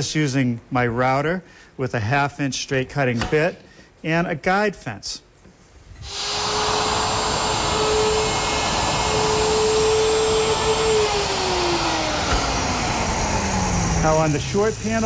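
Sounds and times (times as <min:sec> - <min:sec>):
electric router whining: 0:06.0 - 0:15.0.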